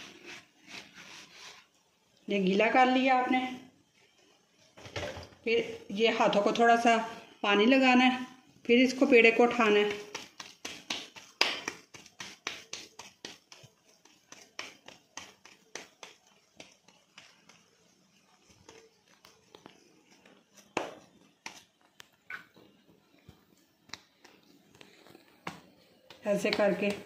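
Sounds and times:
hands patting dough: 8.6s - 27.0s.

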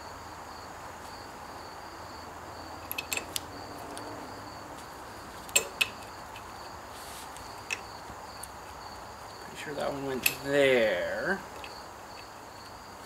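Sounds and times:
insects chirping: 0.0s - 13.0s
metallic clicks of hose fitting: 2.8s - 3.5s.

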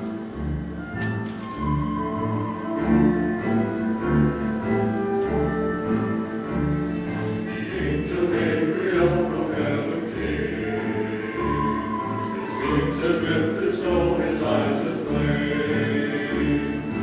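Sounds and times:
instrumental accompaniment: 0.0s - 17.0s
church choir singing: 6.9s - 17.0s.

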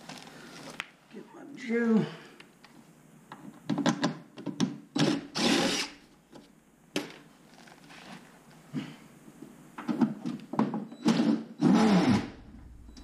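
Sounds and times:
cordless drill running: 5.0s - 6.0s.

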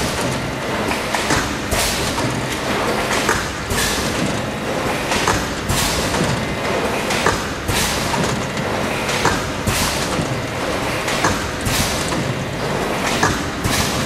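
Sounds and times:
machine knock: 5.0s - 10.4s, 11.0s - 14.0s.

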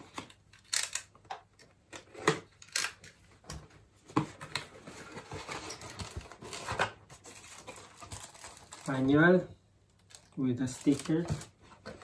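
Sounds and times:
cardboard and paper rustling: 4.0s - 9.4s.

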